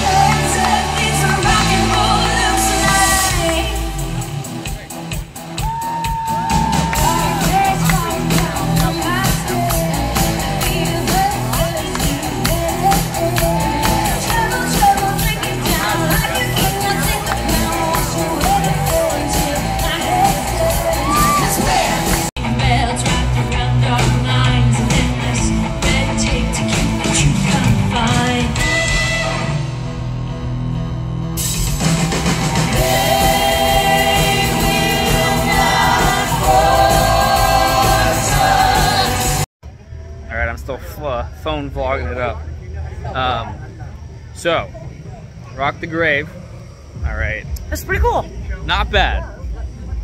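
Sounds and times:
drums beating: 0.0s - 28.2s, 31.4s - 39.5s, 46.9s - 50.0s
rock band playing: 0.0s - 39.5s
person singing: 6.9s - 29.3s.

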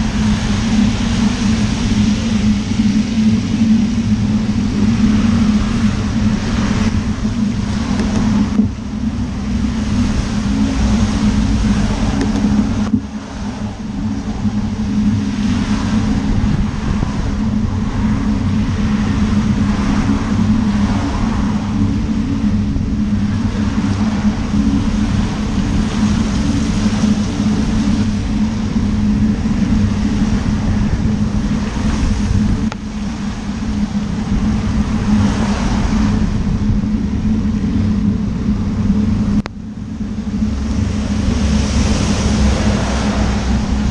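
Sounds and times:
constant low hum: 0.0s - 43.9s
car tyres hissing on wet road: 17.9s - 21.8s, 33.8s - 36.2s, 41.3s - 43.9s.

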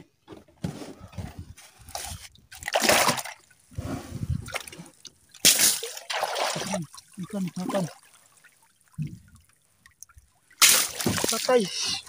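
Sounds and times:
sea water splashing: 2.5s - 12.0s.

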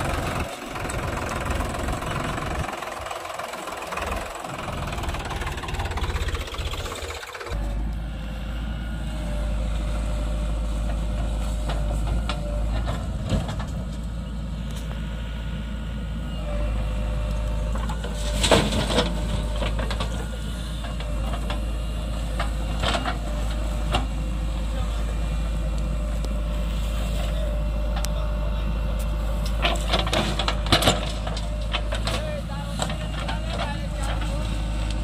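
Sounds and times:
diesel engine under load: 0.0s - 35.0s
clanks from digger arm and bucket: 10.9s - 14.1s, 17.3s - 24.3s, 29.4s - 35.0s.

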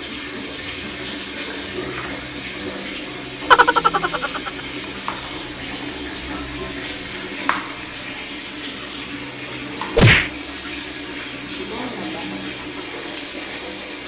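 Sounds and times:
water splash: 10.0s - 10.3s.

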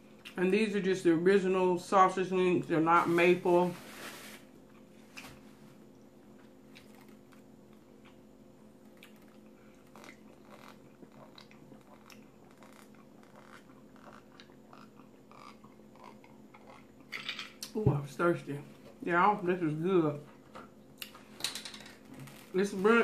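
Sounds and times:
low steady hum: 0.0s - 23.0s
faint chewing: 6.4s - 8.2s, 8.8s - 17.7s
gulping drink: 9.1s - 17.1s.

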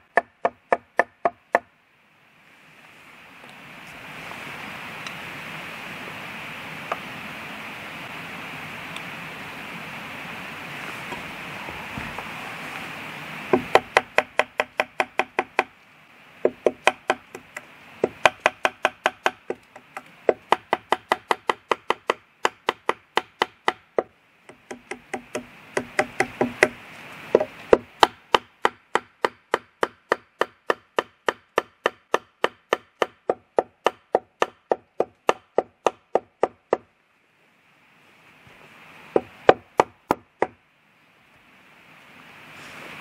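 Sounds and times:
axe hammering wooden peg: 0.1s - 1.7s, 13.5s - 15.7s, 16.4s - 26.8s, 27.4s - 36.8s.

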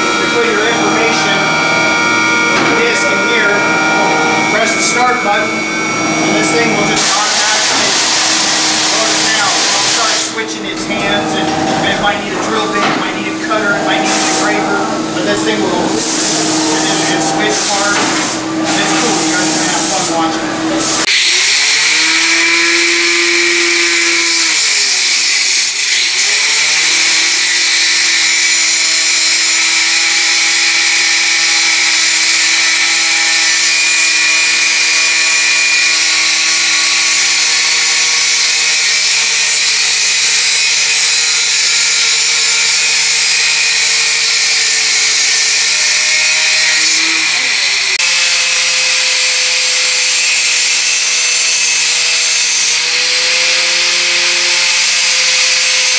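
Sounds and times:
angle grinder cutting metal: 0.0s - 55.9s.

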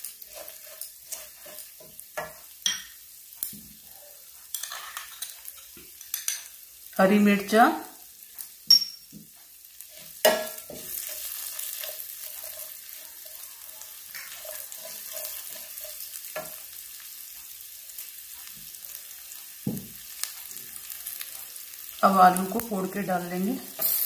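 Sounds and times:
spatula stirring and scraping: 0.0s - 3.0s, 4.4s - 6.5s, 9.2s - 19.4s
spices sizzling in hot oil: 0.0s - 24.0s
spatula knocking against pan: 10.2s - 10.8s.

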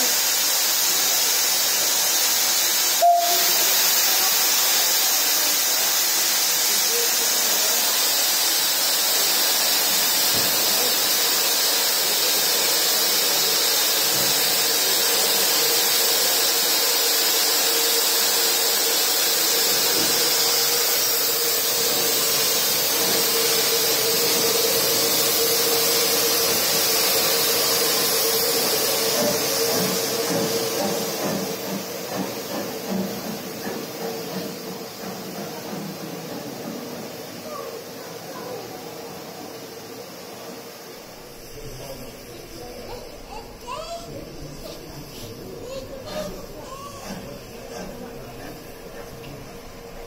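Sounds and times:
steam hissing: 0.0s - 50.0s
faint whistling tone: 3.0s - 3.7s.

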